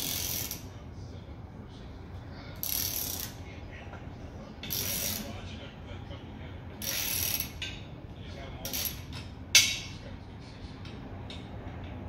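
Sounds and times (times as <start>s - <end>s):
ratchet wrench clicking: 0.0s - 0.7s, 2.6s - 3.4s, 4.6s - 5.3s, 6.8s - 7.8s, 8.6s - 9.8s.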